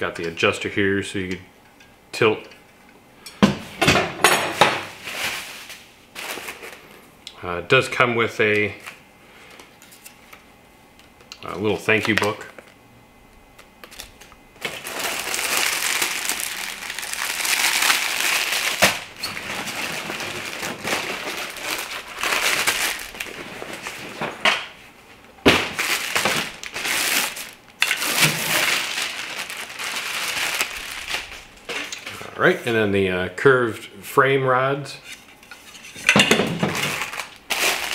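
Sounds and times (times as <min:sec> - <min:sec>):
plastic packaging crinkling: 0:04.9 - 0:06.9, 0:13.5 - 0:24.8, 0:25.4 - 0:32.2, 0:36.5 - 0:37.9.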